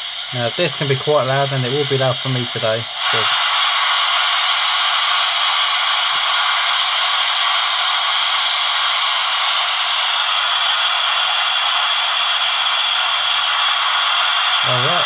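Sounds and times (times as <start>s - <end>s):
steam valve hiss from speaker: 0.0s - 15.0s.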